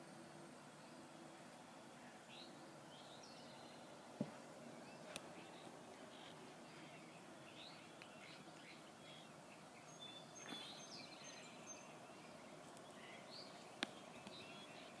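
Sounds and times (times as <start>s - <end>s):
faint background hiss: 0.0s - 15.0s
small bird chirps: 4.8s - 15.0s
short whistled calls: 9.9s - 12.0s.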